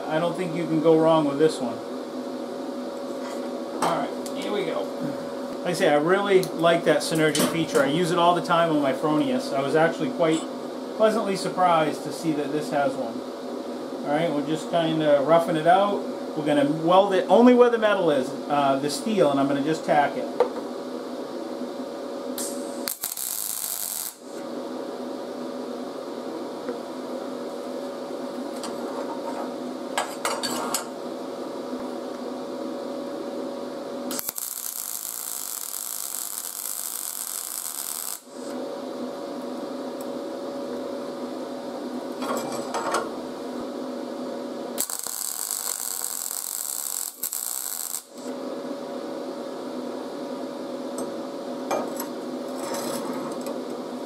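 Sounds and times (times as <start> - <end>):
welding arc crackling buzz: 21.7 - 28.9, 29.5 - 49.8.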